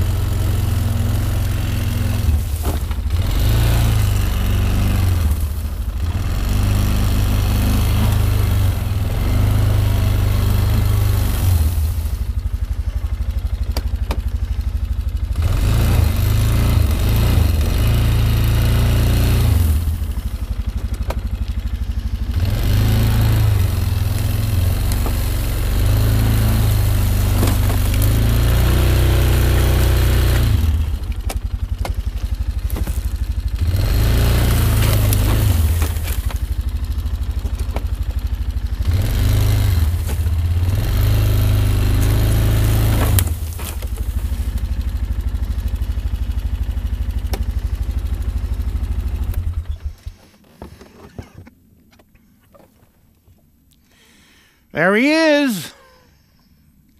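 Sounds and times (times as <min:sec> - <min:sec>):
atv engine running: 0:00.0 - 0:51.5
vehicle driving through tall grass: 0:00.0 - 0:51.5.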